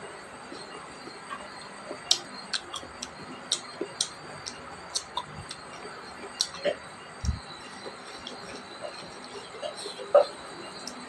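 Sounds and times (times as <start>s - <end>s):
wet chewing clicks and smacks: 1.3s - 9.4s.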